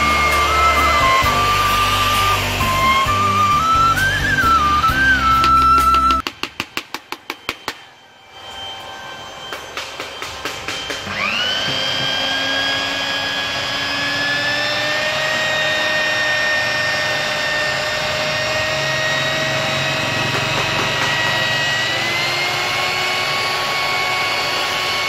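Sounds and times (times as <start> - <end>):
electric polisher motor whine: 0.0 - 6.2, 7.2 - 25.0.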